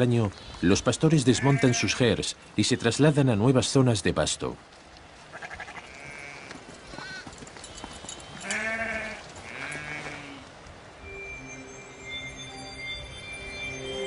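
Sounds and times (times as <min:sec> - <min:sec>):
sheep bleating: 0:01.3 - 0:02.0, 0:05.3 - 0:07.2, 0:08.4 - 0:10.4.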